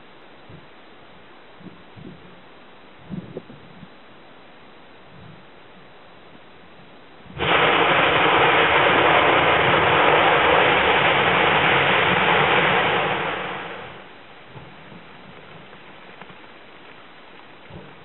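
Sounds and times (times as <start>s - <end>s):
volcanic explosion blast: 7.3s - 15.9s
rushing gas jetting: 7.4s - 14.1s.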